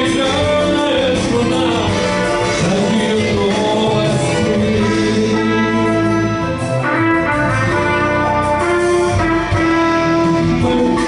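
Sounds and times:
man singing into microphone: 0:00.0 - 0:06.6, 0:10.3 - 0:11.0
guitar backing track: 0:00.0 - 0:11.0.

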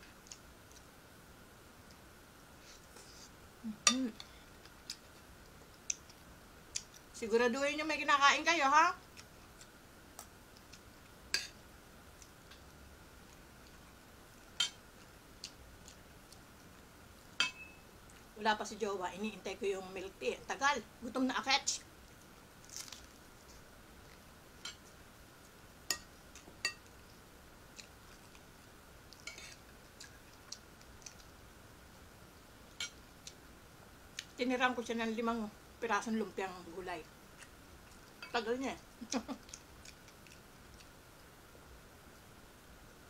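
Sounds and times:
faint steady hum: 0:00.0 - 0:43.0
metal spoon on a plate: 0:17.4 - 0:17.8
chewing clicks: 0:29.1 - 0:31.3, 0:39.4 - 0:41.3.

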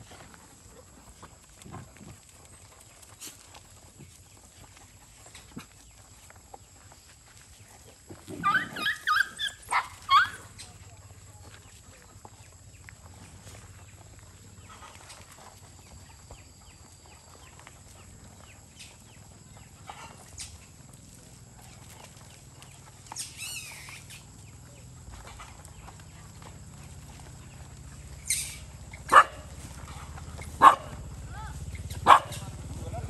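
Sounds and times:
dogs whining and yelping: 0:08.2 - 0:10.6, 0:23.1 - 0:24.2.

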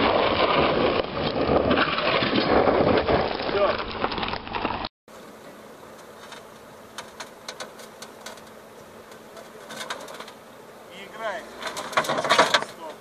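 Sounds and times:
faint steady buzz: 0:05.1 - 0:13.0
outdoor background hiss: 0:05.1 - 0:13.0.

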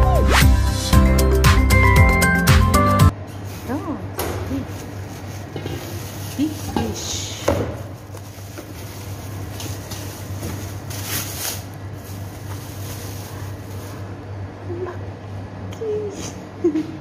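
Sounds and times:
plastic bag rustling: 0:03.4 - 0:14.2.

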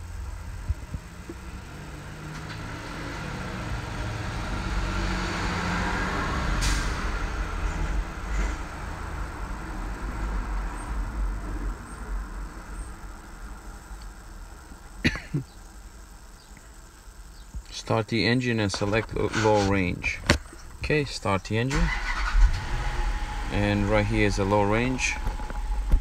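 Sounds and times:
steady low rumble: 0:00.0 - 0:05.0, 0:05.9 - 0:26.0
road vehicle passing: 0:00.0 - 0:14.8, 0:21.7 - 0:26.0
short sharp hiss: 0:06.6 - 0:07.0.

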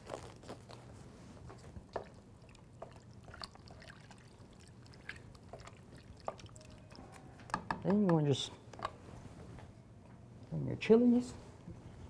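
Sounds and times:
wet sloshing of stirred food: 0:01.3 - 0:07.4.

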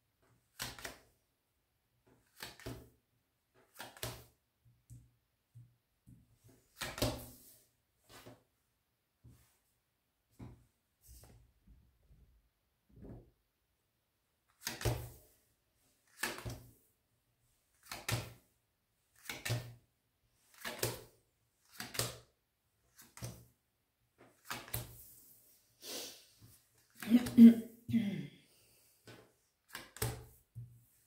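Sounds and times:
cards slapping on a wooden table: 0:00.5 - 0:01.1, 0:02.1 - 0:02.9, 0:03.6 - 0:05.1, 0:06.6 - 0:08.4, 0:14.6 - 0:15.3, 0:16.1 - 0:16.8, 0:17.8 - 0:18.4, 0:19.2 - 0:19.8, 0:20.5 - 0:22.3, 0:22.9 - 0:23.5, 0:24.2 - 0:25.0, 0:29.0 - 0:31.0.

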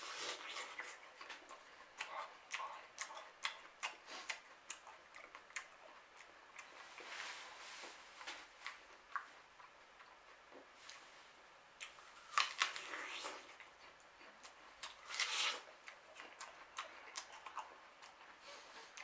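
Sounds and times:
person chewing crisp apple: 0:00.0 - 0:07.2, 0:11.8 - 0:19.0.

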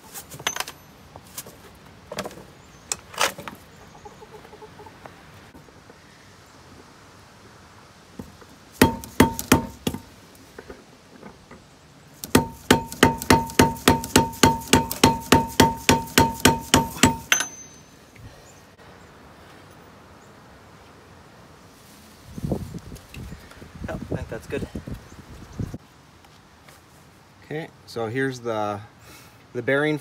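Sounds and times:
hammer striking metal socket: 0:12.2 - 0:17.9.

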